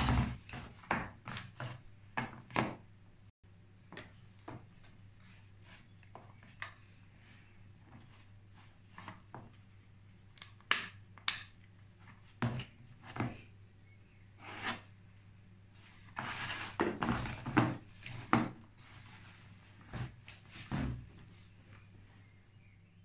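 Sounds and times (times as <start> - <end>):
rubbing and rustling: 15.8 - 22.2.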